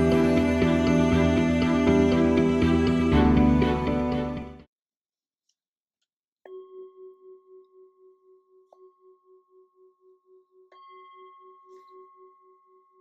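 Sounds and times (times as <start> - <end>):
singing bowl ringing: 6.5 - 13.0.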